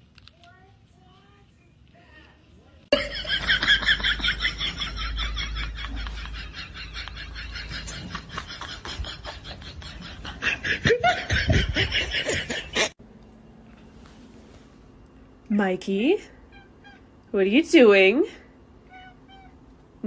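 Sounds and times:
person laughing: 0:03.0 - 0:13.0.

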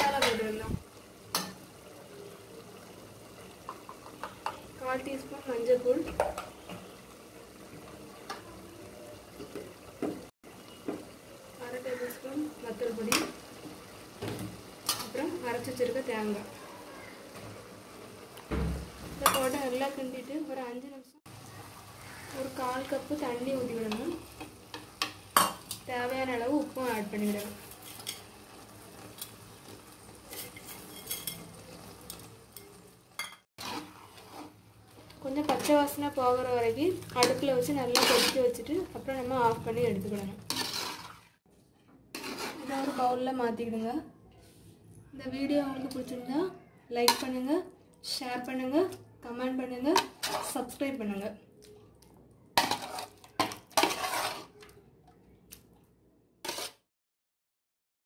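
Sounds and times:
metal spoon clinking on pot: 0:30.3 - 0:31.5
spoon clattering: 0:30.3 - 0:33.4.

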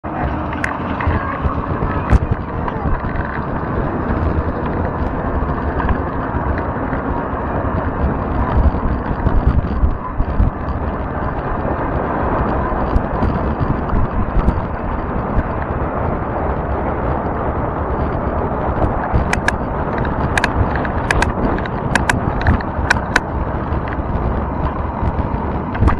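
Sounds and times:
fat tyres rolling on asphalt: 0:00.0 - 0:25.9
wind buffeting microphone: 0:00.0 - 0:25.9
faint ticks: 0:19.0 - 0:24.1.

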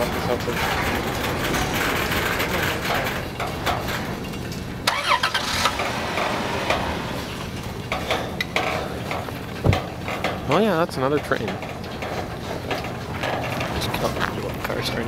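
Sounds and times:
freight train rumbling past: 0:00.0 - 0:11.5
wheels clunking on rails: 0:00.0 - 0:15.0.

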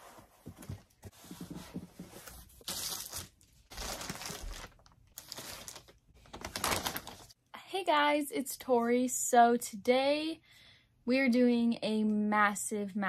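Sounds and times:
cardboard boxes rustling and scraping: 0:00.0 - 0:02.7.

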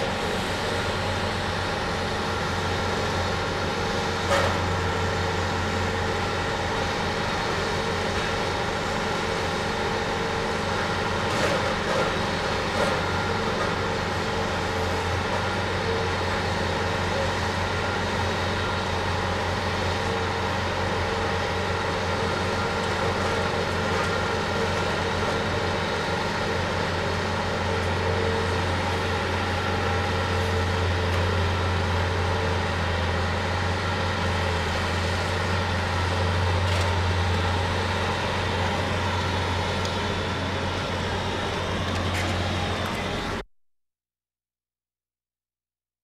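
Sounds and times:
diesel engine droning: 0:00.0 - 0:43.4.

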